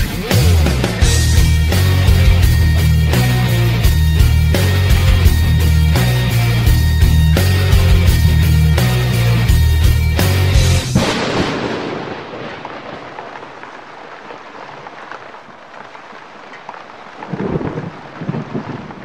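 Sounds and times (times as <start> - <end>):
thunder rumbling: 0.0 - 15.9, 16.6 - 19.0
steady hiss of rain: 11.0 - 19.0.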